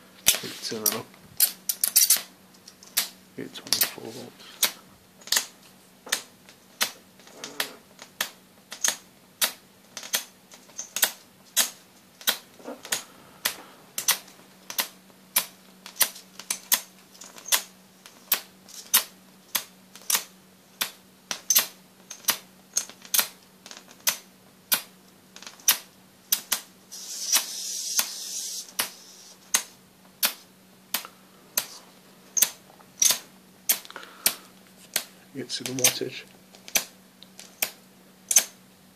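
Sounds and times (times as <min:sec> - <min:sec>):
low electrical hum: 0:00.0 - 0:38.9
electric arc cracking: 0:26.9 - 0:29.2.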